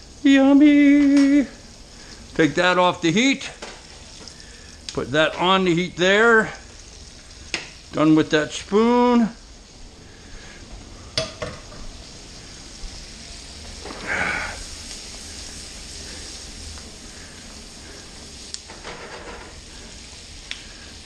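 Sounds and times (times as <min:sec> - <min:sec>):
onions sizzling in a frying pan: 0:00.0 - 0:21.0.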